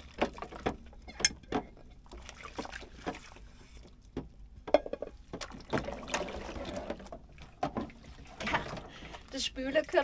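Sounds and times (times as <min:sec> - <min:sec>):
water sloshing in a sink: 0:00.0 - 0:10.0
dishes knocking together: 0:04.7 - 0:05.2.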